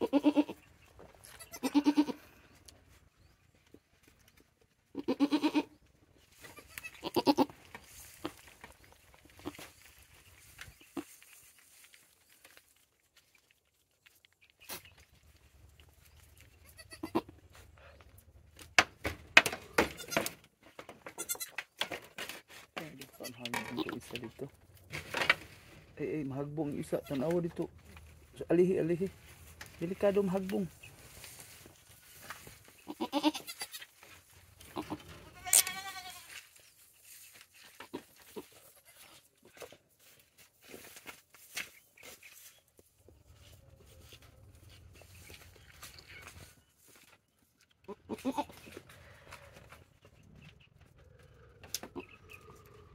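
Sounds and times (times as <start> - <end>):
goats bleating: 0.0 - 0.6, 1.3 - 2.3, 4.9 - 5.8, 6.5 - 7.5, 16.6 - 17.3, 32.8 - 33.9, 34.6 - 36.4, 47.9 - 48.6
soft rustles and clicks: 20.5 - 47.8.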